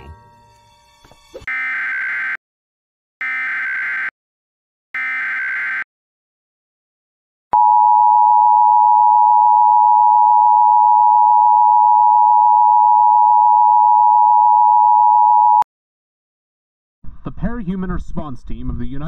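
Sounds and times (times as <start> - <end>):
two-tone emergency alert signal: 3.2 - 4.1, 5.0 - 5.9.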